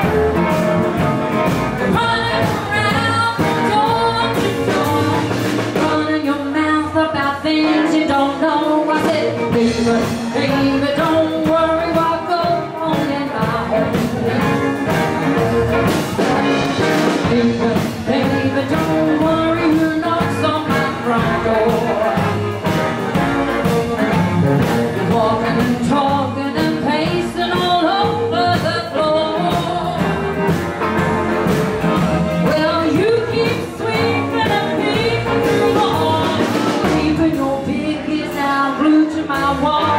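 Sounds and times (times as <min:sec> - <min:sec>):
drum beat: 0:00.0 - 0:06.0, 0:13.4 - 0:25.8, 0:28.6 - 0:37.2
electric and acoustic guitars: 0:00.0 - 0:39.9
upright double bass: 0:00.0 - 0:39.9
woman singing: 0:01.8 - 0:15.0, 0:16.0 - 0:22.8, 0:25.0 - 0:30.5, 0:32.4 - 0:39.9.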